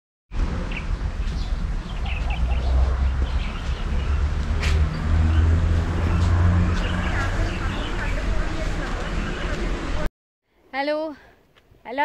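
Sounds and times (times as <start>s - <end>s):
steady low rumble: 0.3s - 10.1s
small birds chirping: 0.7s - 10.0s.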